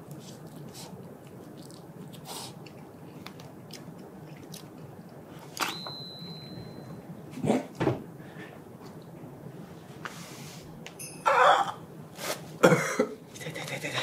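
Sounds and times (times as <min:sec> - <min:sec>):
high steady tone: 0:11.0 - 0:11.4.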